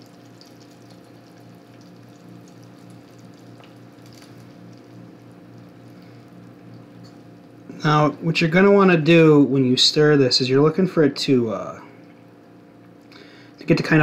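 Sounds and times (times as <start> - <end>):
syrup trickling and dripping: 0.0 - 7.8.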